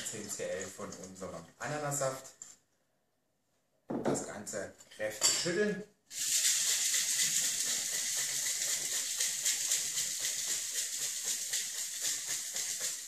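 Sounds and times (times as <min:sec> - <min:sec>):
ice rattling in cocktail shaker: 0:00.0 - 0:01.4, 0:06.1 - 0:13.0.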